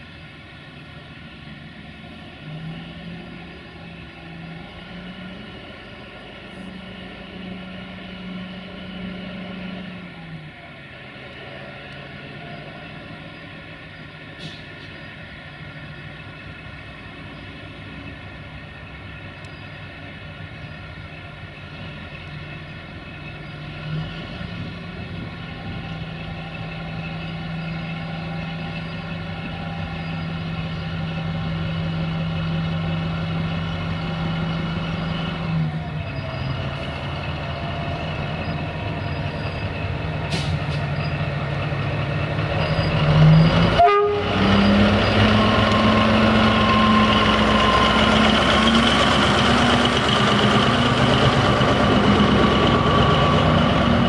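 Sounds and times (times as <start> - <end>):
locomotive engine running: 0.0 - 54.0
loud horn blast: 43.7 - 48.0.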